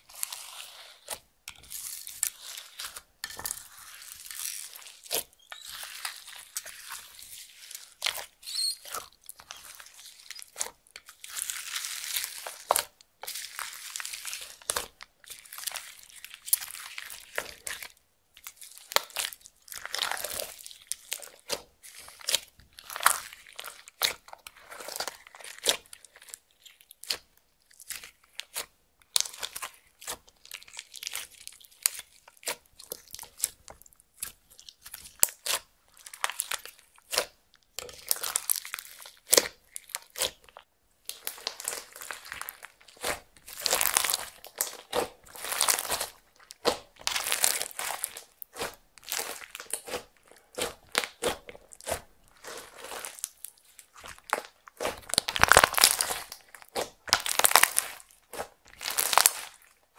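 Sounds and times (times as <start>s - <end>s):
slime kneaded by hand crackling: 0.0s - 59.9s.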